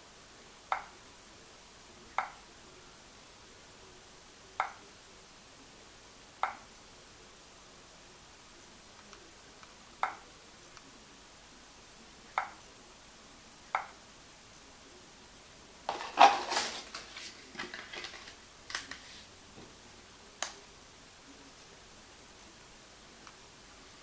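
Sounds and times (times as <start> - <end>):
packaging clattering and rustling: 15.9 - 19.1.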